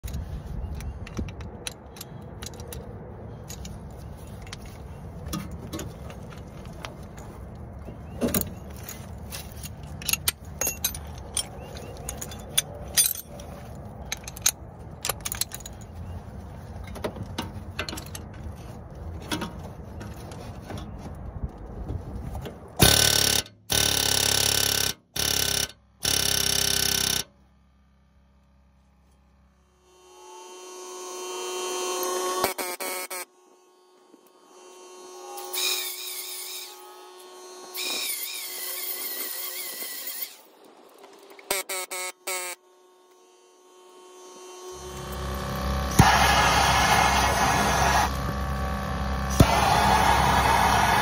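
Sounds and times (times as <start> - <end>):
hand tools clicking and knocking: 0.0 - 16.2, 16.8 - 18.5
pneumatic air hammer bursts: 22.8 - 27.3, 35.4 - 36.8, 44.8 - 51.0.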